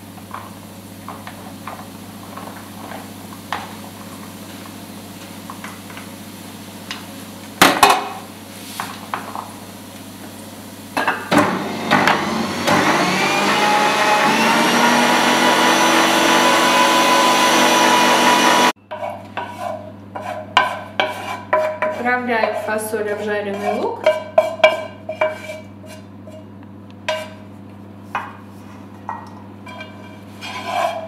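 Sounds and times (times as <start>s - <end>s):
meat grinder motor whining: 11.3s - 18.8s.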